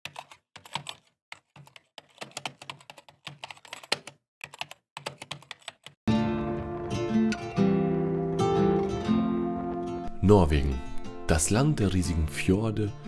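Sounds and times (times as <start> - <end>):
keyboard typing: 0.0 - 6.0.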